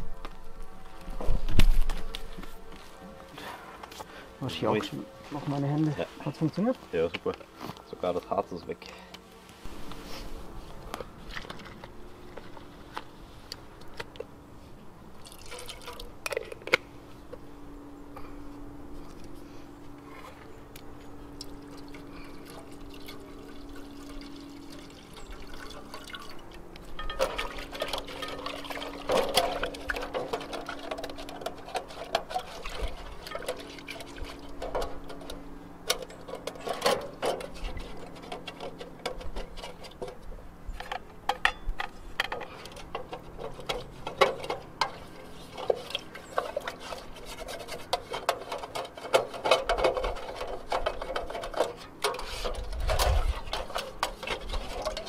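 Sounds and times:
pot being scrubbed: 27.0s - 35.3s, 43.2s - 55.0s
metal pot clanking: 27.0s - 35.4s.

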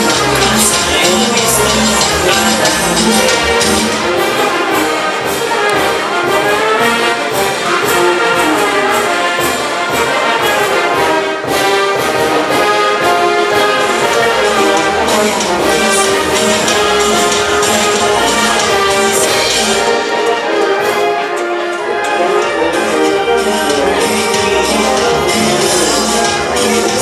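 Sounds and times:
brass band playing: 0.0s - 27.0s
percussion beat: 0.0s - 27.0s.

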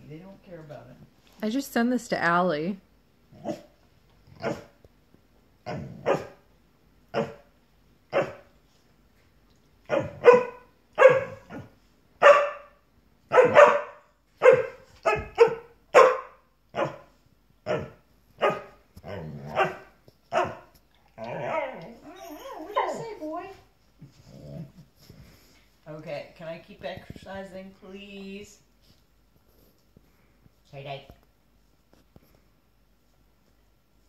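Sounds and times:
dog barking: 4.4s - 4.8s, 5.6s - 6.4s, 7.1s - 7.5s, 8.1s - 8.5s, 9.9s - 20.7s.

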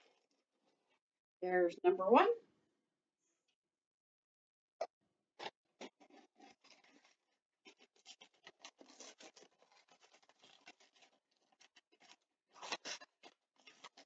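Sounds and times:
cup scooping sugar: 5.4s - 14.0s
paper bag rustling: 6.0s - 13.0s.

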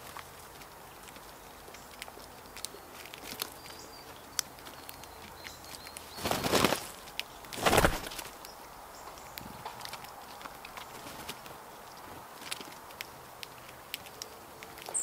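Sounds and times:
bird wingbeats whooshing: 6.2s - 8.4s
light ticks: 8.4s - 15.0s.

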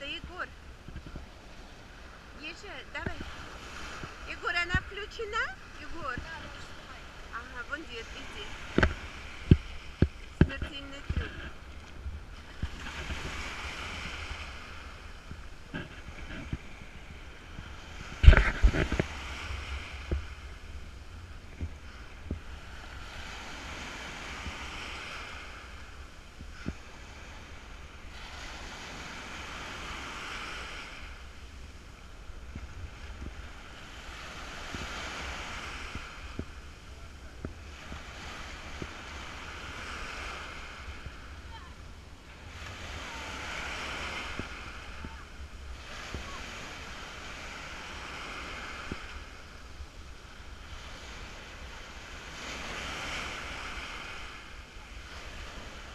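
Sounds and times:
waves washing up beach: 0.0s - 55.9s
wind on microphone: 0.0s - 55.9s.

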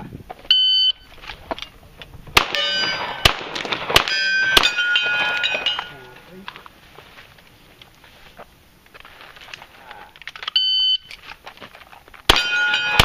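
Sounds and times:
steel targets ringing: 2.4s - 3.4s, 4.0s - 6.3s, 12.3s - 13.0s
pistol shots: 2.4s - 5.8s, 12.3s - 13.0s.

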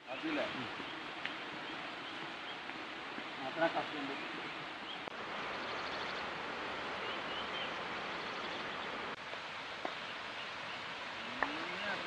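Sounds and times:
forest rushing hiss: 0.0s - 12.0s.

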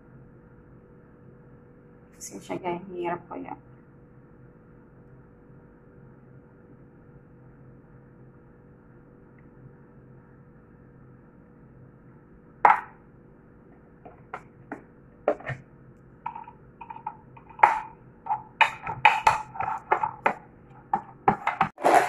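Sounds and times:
faint steady hum: 0.0s - 22.0s.

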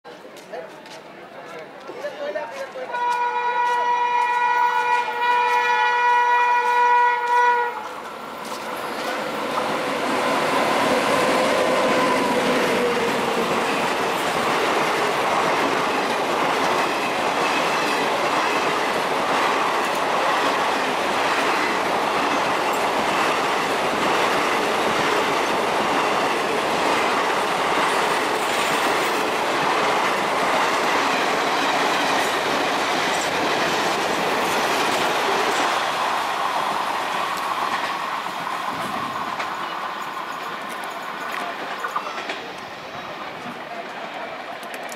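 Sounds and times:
train wheels rumbling over rails: 0.3s - 44.9s
locomotive horn: 2.9s - 8.0s.

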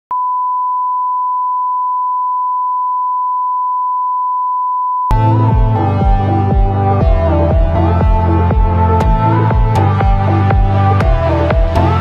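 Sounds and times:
steady test tone beep: 0.1s - 5.1s
electronic music with heavy beat: 5.1s - 12.0s.

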